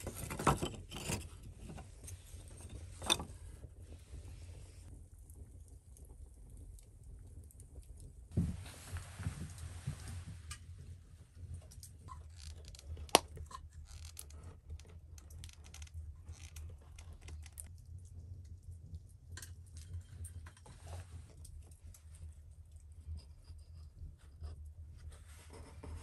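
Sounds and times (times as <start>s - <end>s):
wooden stick scraping: 0.0s - 3.4s.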